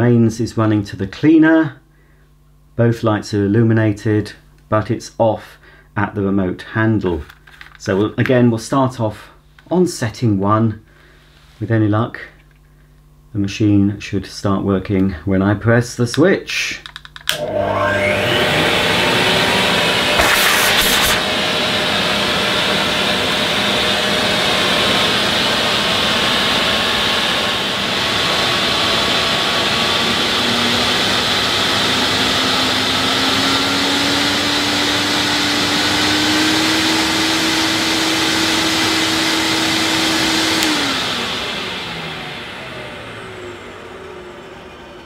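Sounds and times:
vacuum cleaner motor running: 17.3s - 45.0s.

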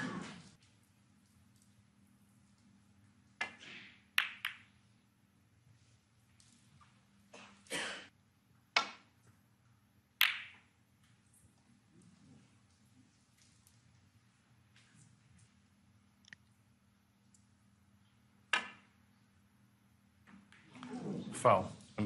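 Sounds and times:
snooker balls clicking together: 3.2s - 4.8s, 10.2s - 10.7s, 18.5s - 19.0s.

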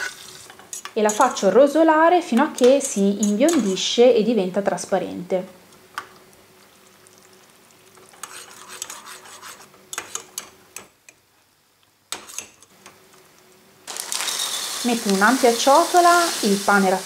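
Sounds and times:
onion sizzling in butter: 0.0s - 1.9s, 5.8s - 10.7s, 12.1s - 17.0s
metal spoon scraping a saucepan: 8.2s - 10.4s.

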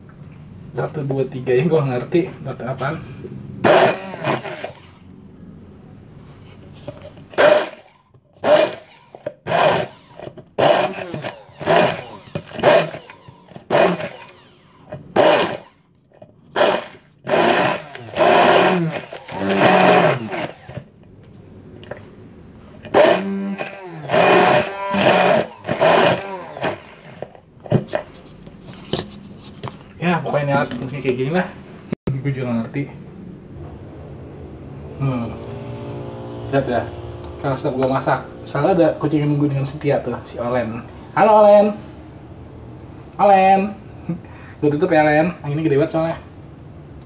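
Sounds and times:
stick blender whirring in pulses: 3.6s - 5.1s, 7.2s - 15.8s, 16.5s - 21.0s, 22.8s - 27.4s, 33.5s - 40.8s.

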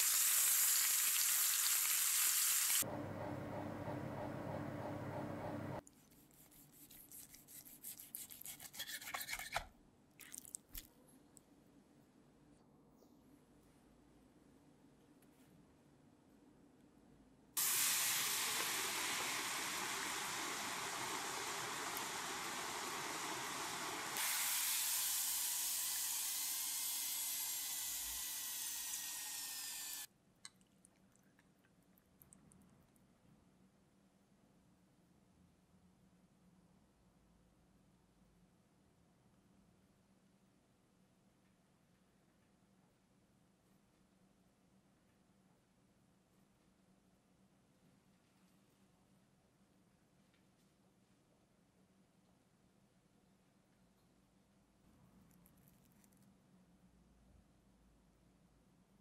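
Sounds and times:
fries sizzling in hot oil: 0.0s - 2.8s, 17.6s - 30.1s
oven hum and hiss: 2.8s - 5.8s, 17.6s - 30.1s.

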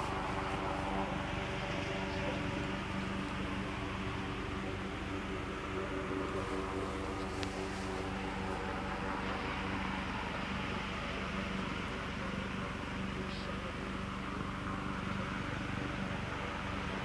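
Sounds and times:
helicopter hovering: 0.0s - 17.0s.

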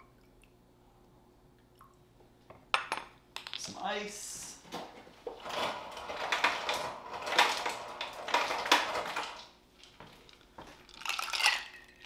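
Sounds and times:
ice cubes clattering from dispenser: 5.4s - 9.5s, 10.9s - 12.0s
ice rattling into glass: 10.9s - 12.0s.

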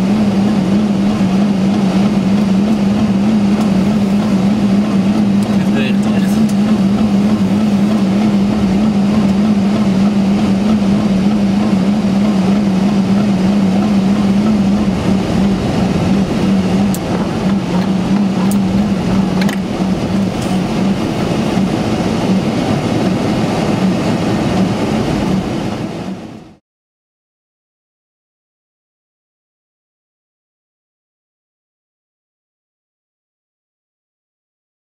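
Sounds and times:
aircraft cockpit drone: 0.0s - 26.6s.

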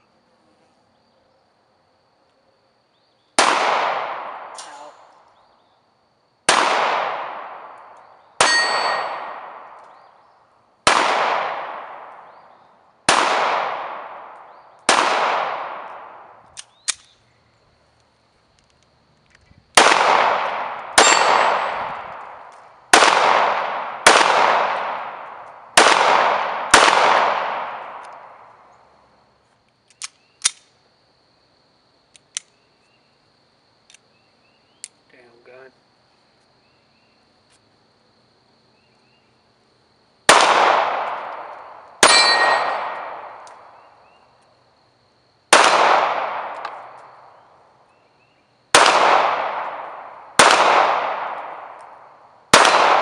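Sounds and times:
pistol shots ringing out: 3.4s - 5.2s, 6.5s - 10.0s, 10.8s - 17.0s, 19.8s - 28.6s, 40.3s - 44.2s, 45.5s - 47.4s, 48.7s - 53.0s.

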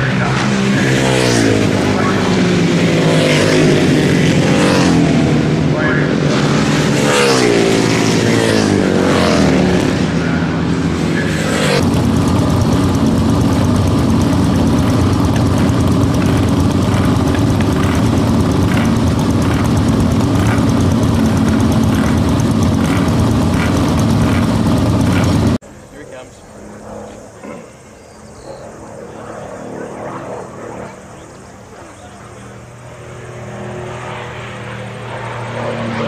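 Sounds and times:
sidecar engines running: 0.0s - 27.7s
racing motorcycles passing: 0.0s - 27.9s, 28.6s - 36.0s.

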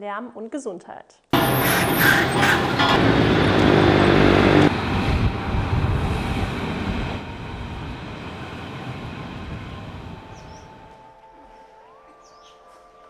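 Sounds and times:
loud engine drone: 1.4s - 11.1s
passing traffic noise: 1.4s - 11.1s.

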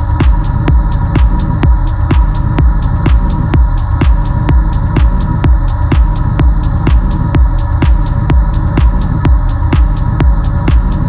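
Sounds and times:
kick drum: 0.0s - 11.0s.

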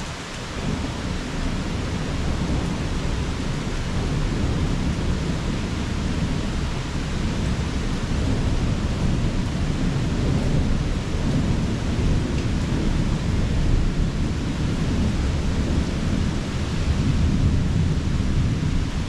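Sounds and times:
heavy rain: 0.0s - 19.0s
distant thunder rumble: 0.6s - 19.0s.

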